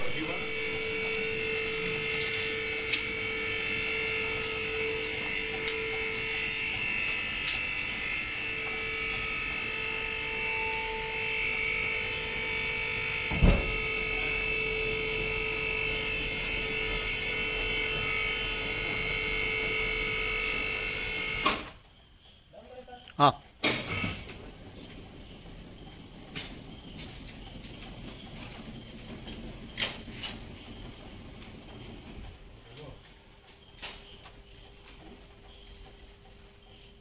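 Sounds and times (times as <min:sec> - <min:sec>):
hydraulic pump motor whining: 0:00.0 - 0:21.7, 0:23.6 - 0:32.8
thump: 0:13.3 - 0:13.8.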